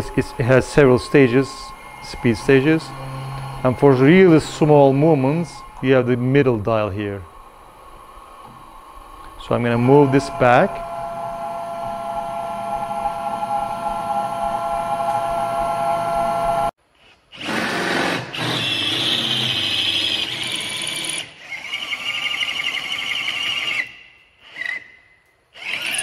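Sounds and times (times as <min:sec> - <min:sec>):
cordless drill drilling metal: 0:00.0 - 0:16.6, 0:25.5 - 0:26.0
stepper motors whining: 0:00.0 - 0:16.7, 0:25.6 - 0:26.0.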